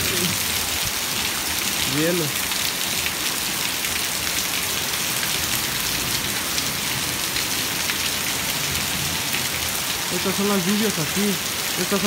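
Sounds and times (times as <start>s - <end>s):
heavy rain hissing: 0.0s - 12.0s
hailstones ticking on concrete: 5.3s - 12.0s.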